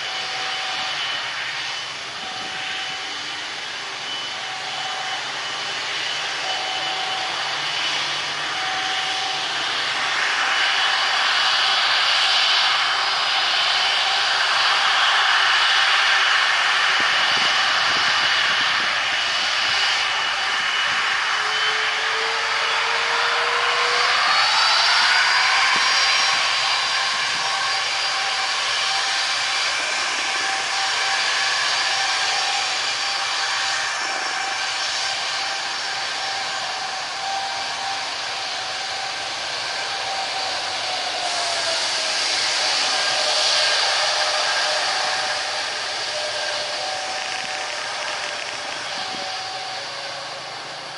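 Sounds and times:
jet engines whining: 0:00.0 - 0:50.9.

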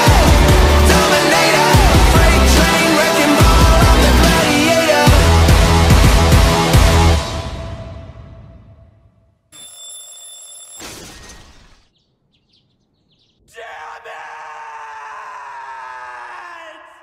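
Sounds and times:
music: 0:00.0 - 0:09.2
ringing sound effect: 0:09.6 - 0:11.6
man shouting: 0:13.5 - 0:17.0.

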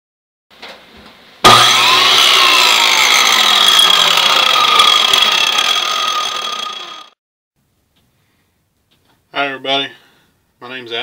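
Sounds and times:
power tool whining: 0:01.4 - 0:07.2.

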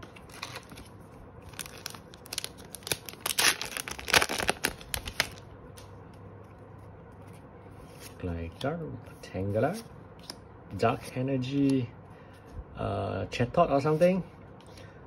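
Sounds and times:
foil wrapper crinkling and tearing: 0:00.1 - 0:05.4.

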